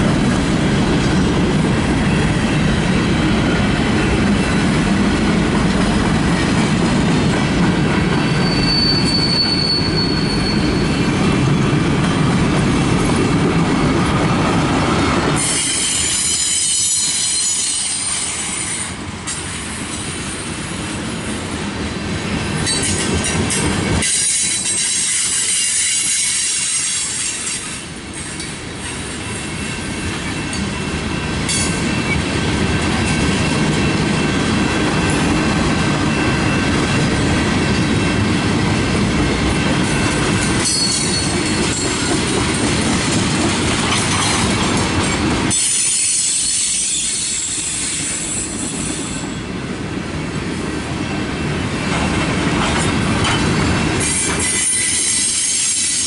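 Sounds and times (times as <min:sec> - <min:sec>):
freight train wheels rumbling: 0:00.0 - 0:56.0
high wheel squeal: 0:08.1 - 0:11.3, 0:15.4 - 0:19.4, 0:39.9 - 0:42.3, 0:45.5 - 0:49.4, 0:54.0 - 0:56.0.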